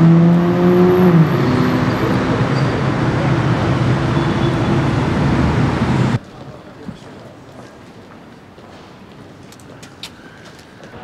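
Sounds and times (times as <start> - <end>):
sports car engine pulling away: 0.0 - 6.2.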